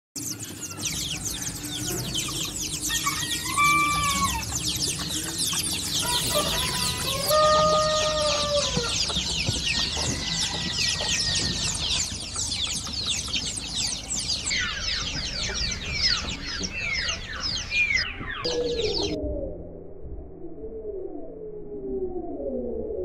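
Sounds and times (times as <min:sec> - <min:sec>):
chickens clucking: 0:00.2 - 0:19.2
small birds chirping: 0:00.2 - 0:19.2
drawn-out hen call: 0:01.2 - 0:19.2.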